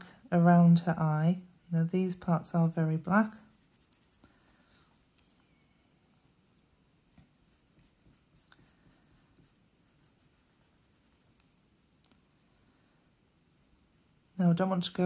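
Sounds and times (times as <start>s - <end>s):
pencil scratching on paper: 1.5s - 5.2s, 7.4s - 11.4s.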